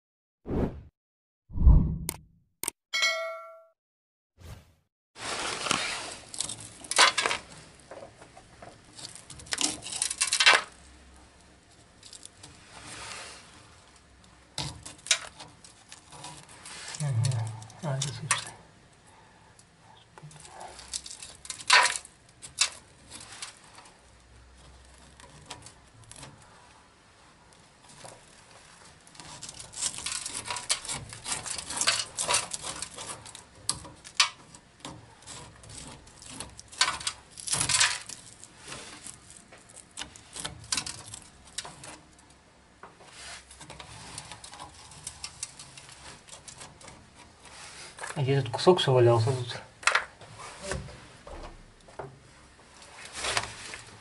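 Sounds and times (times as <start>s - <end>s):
fingers scraping rust off pipe: 14.6s - 17.4s, 27.9s - 42.1s, 43.0s - 48.0s.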